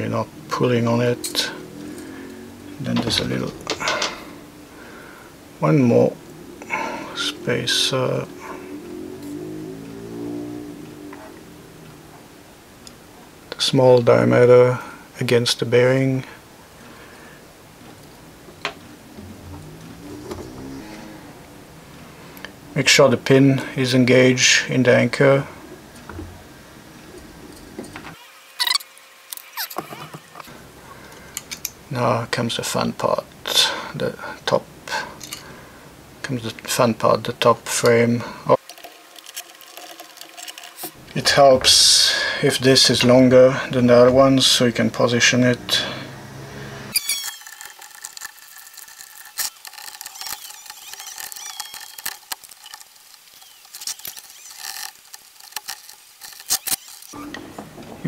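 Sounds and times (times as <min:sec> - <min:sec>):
plastic clock parts clicking and knocking: 0:47.0 - 0:57.2.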